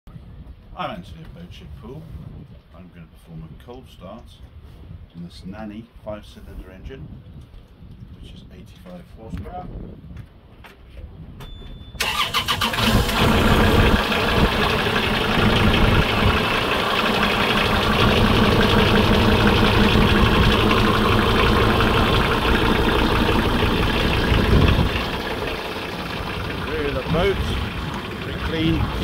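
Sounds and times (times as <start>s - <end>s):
diesel engine idling: 12.0s - 29.0s.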